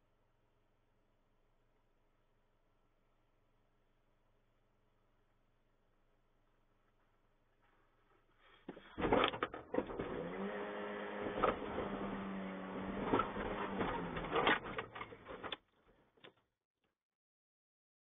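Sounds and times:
engine revving: 9.8 - 15.1.

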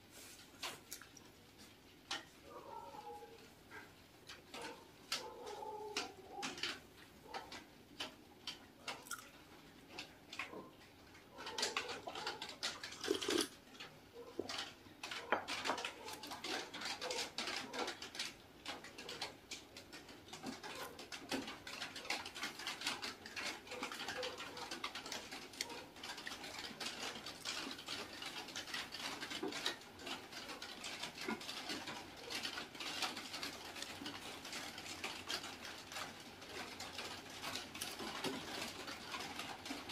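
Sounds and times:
chewing with mouth clicks: 8.9 - 9.4, 11.5 - 13.6.

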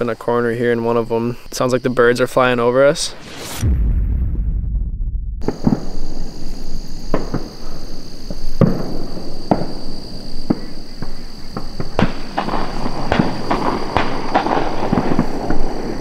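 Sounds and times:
insects droning: 0.0 - 3.6, 5.4 - 16.0
low rumble: 3.1 - 5.7.

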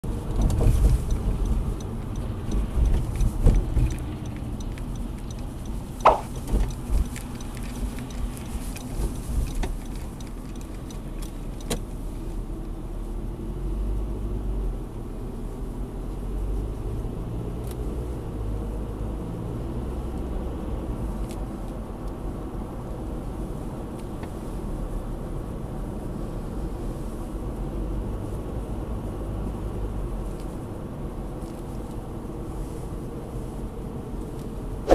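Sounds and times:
engine and tyre rumble: 0.0 - 34.9
knocks and bumps: 6.0 - 7.1.

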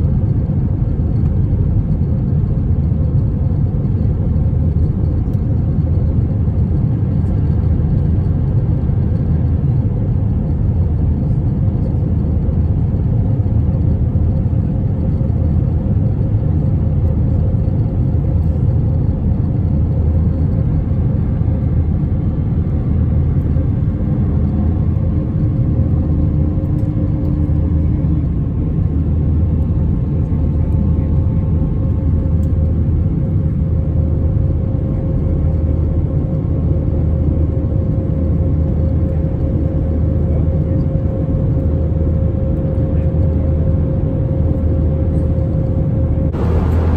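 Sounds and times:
airliner cabin rumble: 0.0 - 46.9
faint steady hum: 15.1 - 46.9.

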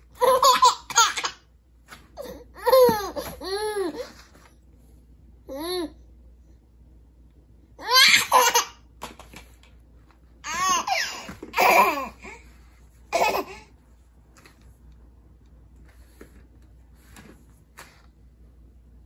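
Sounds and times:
baby giggling: 7.8 - 8.7, 10.5 - 12.4, 13.1 - 13.7.

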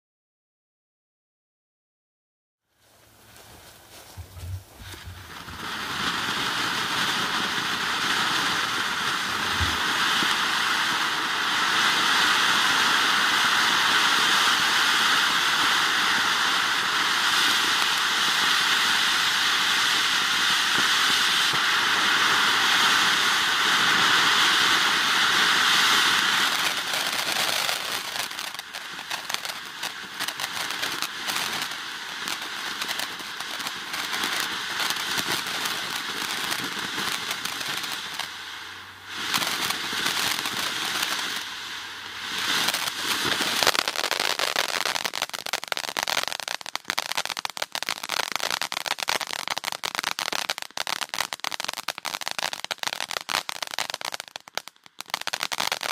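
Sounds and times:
fireworks crackling: 2.8 - 55.9
fireworks fountain hissing: 2.8 - 55.9.

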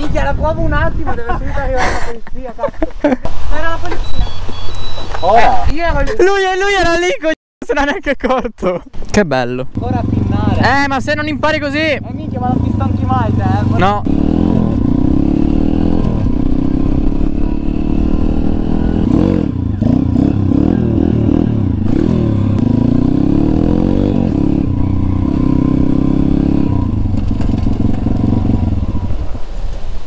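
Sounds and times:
motorbike engine revving: 9.8 - 29.3.

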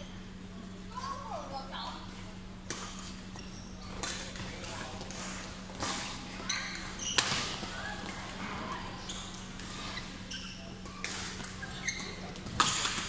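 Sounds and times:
rackets hitting shuttlecock: 3.9 - 8.3, 10.8 - 13.0
shoes squeaking on floor: 6.4 - 7.6, 9.0 - 12.4.

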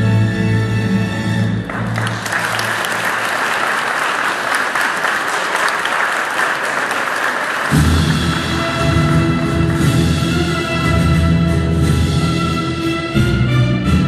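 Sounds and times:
music: 0.0 - 2.4, 7.7 - 14.0
audience applauding: 1.6 - 10.4.

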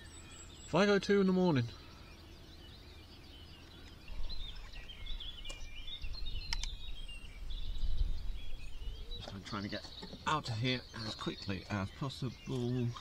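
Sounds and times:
small birds chirping and singing: 0.0 - 13.0
sharp clicks: 6.4 - 6.8.

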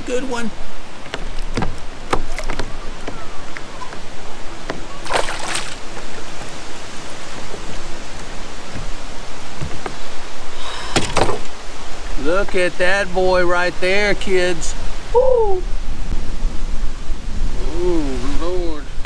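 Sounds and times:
water wash: 0.0 - 19.0
wind noise: 0.0 - 19.0
fish splashing at surface: 4.9 - 6.0.

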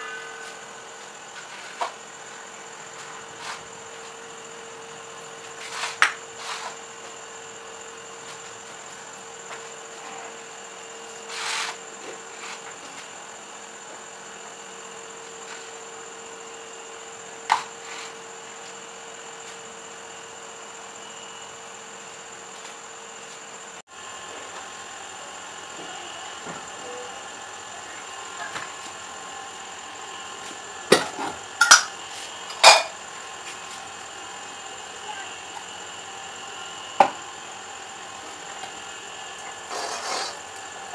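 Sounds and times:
faint high whine: 0.0 - 23.4
bowl scraping on countertop: 39.7 - 40.4.

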